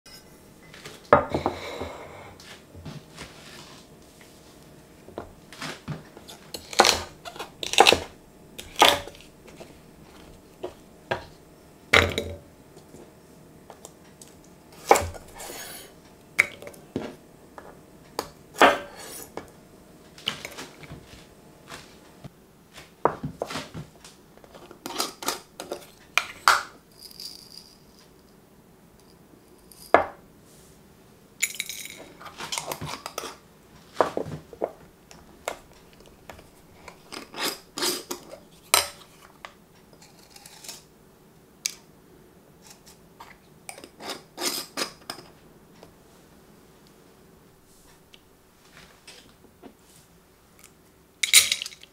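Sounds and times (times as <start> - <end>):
ceramic bowl set down: 12.0 - 12.4.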